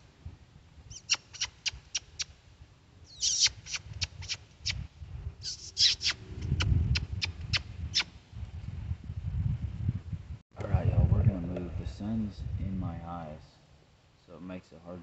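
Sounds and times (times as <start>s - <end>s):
squirrel call squeaks: 0.9s - 2.3s, 3.1s - 4.8s, 5.4s - 8.1s.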